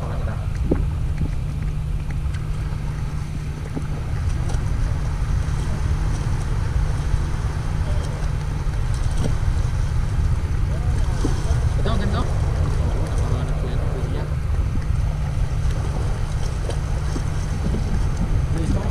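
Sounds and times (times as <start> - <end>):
wind buffeting microphone: 0.0 - 18.9
clicks of rocks underfoot in water: 0.4 - 10.3.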